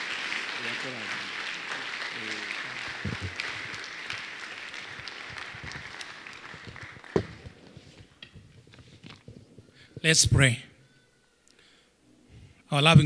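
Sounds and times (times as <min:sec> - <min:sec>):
congregation applauding: 0:00.0 - 0:08.4.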